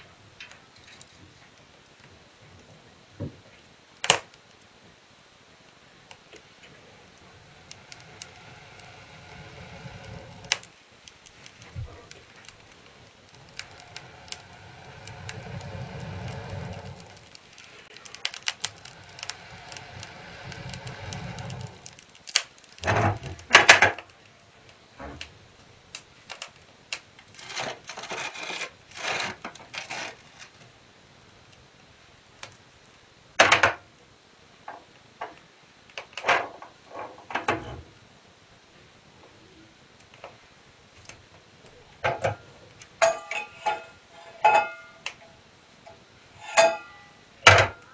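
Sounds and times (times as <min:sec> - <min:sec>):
fire crackling: 0:00.0 - 0:47.9
metal clanks and scrapes: 0:43.0 - 0:47.8.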